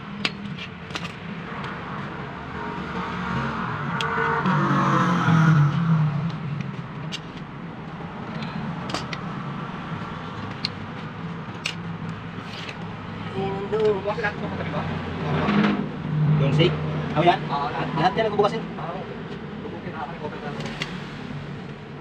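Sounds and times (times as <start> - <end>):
pliers clicking on metal: 0.2 - 1.2, 11.6 - 11.8
vehicle passing by: 1.2 - 7.0, 7.7 - 22.0.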